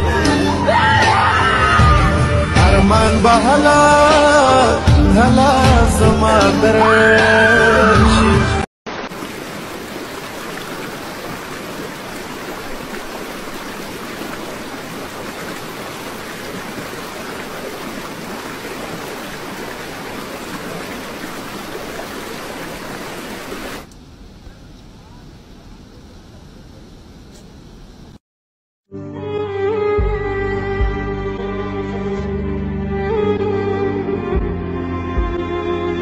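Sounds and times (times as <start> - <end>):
floodwater rushing: 8.9 - 23.9.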